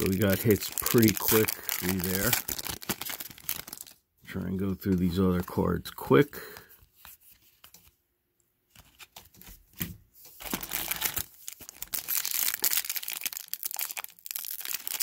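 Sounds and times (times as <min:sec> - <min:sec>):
foil wrapper crinkling: 0:00.0 - 0:04.0, 0:10.4 - 0:15.0.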